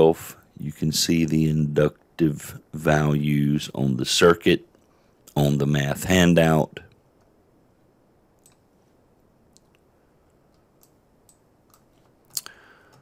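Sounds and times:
computer mouse clicks: 8.4s - 8.7s, 10.4s - 13.0s.

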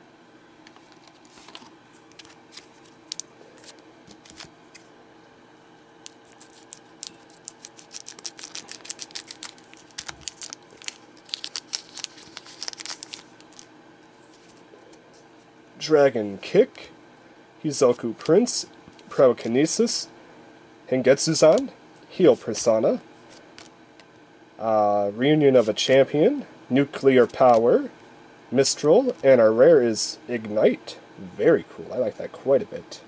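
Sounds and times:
faint steady hum: 0.0s - 33.0s
wrapper crinkling: 6.1s - 13.7s.

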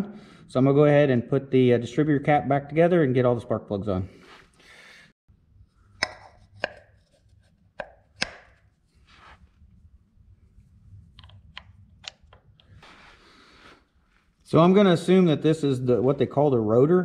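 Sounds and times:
sharp clicks and taps: 7.8s - 8.5s
faint low hum: 8.7s - 17.0s.

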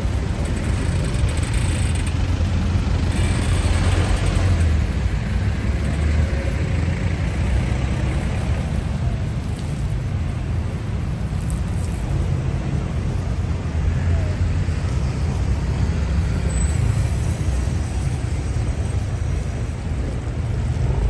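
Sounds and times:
traffic rumble: 0.0s - 21.0s.

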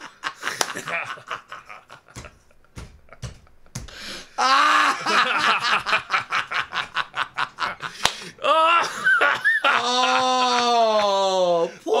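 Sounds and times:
hearty laughter: 0.0s - 3.2s, 4.4s - 11.1s
faint knocks: 2.1s - 4.1s.

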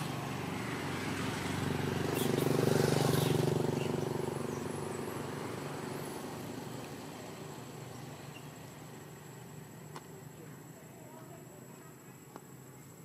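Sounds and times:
vehicle engine passing by: 0.0s - 9.3s.

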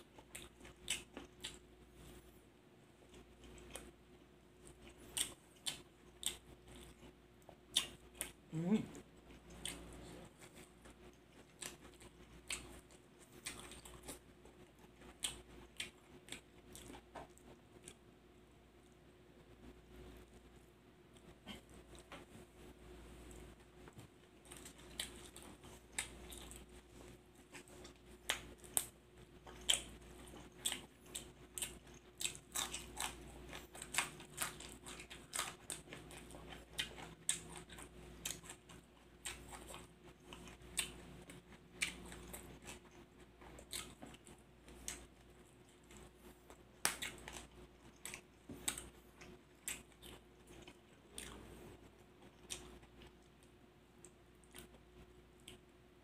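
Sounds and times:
man chewing food: 0.0s - 55.9s.

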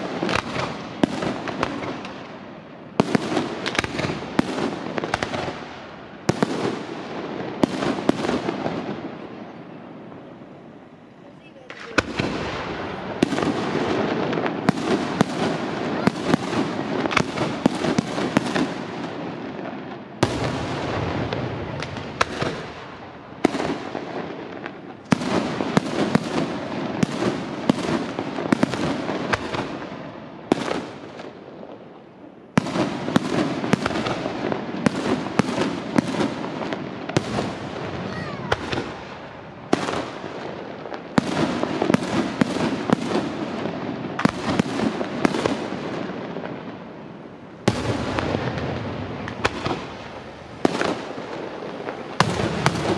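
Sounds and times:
fireworks bangs and crackling: 0.0s - 52.9s.

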